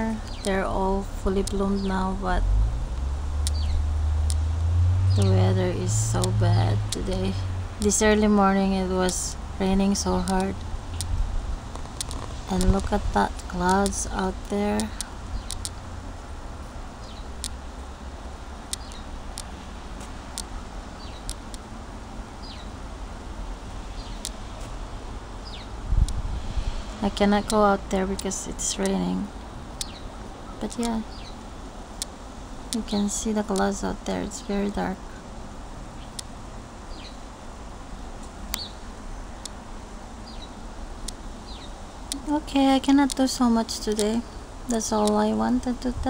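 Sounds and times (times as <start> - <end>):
sharp clicks: 0.0 - 2.1, 2.9 - 8.0, 9.0 - 15.8, 18.6 - 21.7, 24.0 - 24.4, 42.9 - 45.3
bird chirping: 0.0 - 2.2, 3.4 - 8.0, 17.0 - 17.5, 18.7 - 19.1, 20.5 - 21.4, 22.4 - 22.8, 23.9 - 24.3, 29.8 - 31.4, 38.5 - 39.5
sharp ticks: 0.0 - 2.2, 2.9 - 8.4, 9.0 - 15.8, 17.0 - 17.6, 18.6 - 19.6, 27.1 - 29.1, 41.0 - 45.9
low rumble: 0.0 - 20.8
rain hissing: 0.0 - 45.0
high bird chirps: 3.5 - 3.8.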